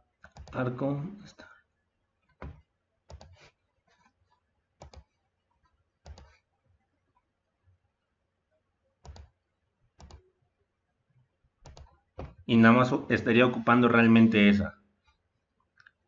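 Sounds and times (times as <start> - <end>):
computer mouse clicking: 0.2 - 0.6, 2.3 - 4.1, 4.8 - 6.5, 9.0 - 9.4, 10.0 - 10.3, 11.6 - 12.4.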